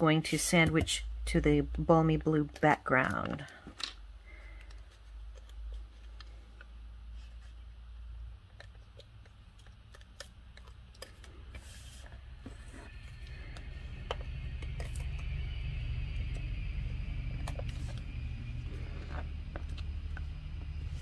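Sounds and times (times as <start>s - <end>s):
steady low rumble: 11.3s - 21.0s.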